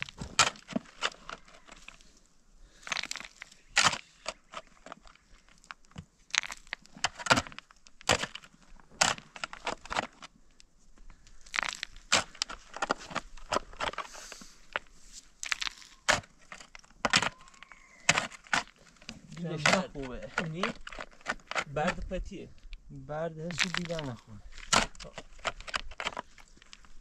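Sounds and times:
digging tool crunching into soil: 0:00.0 - 0:02.0, 0:02.8 - 0:05.6, 0:06.2 - 0:10.3, 0:11.3 - 0:22.2, 0:23.4 - 0:27.0.

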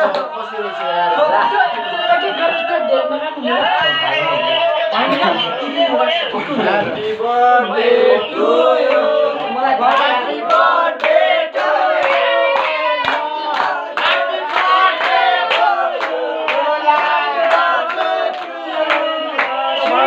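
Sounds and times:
men singing together: 0:03.7 - 0:20.0
clapping in time: 0:12.0 - 0:20.0.

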